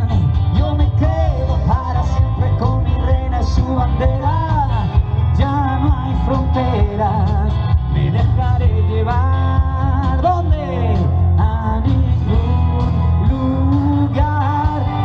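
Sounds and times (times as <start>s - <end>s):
bass guitar: 0.0s - 15.0s
electric guitar: 0.0s - 15.0s
lead vocals singing: 0.0s - 15.0s.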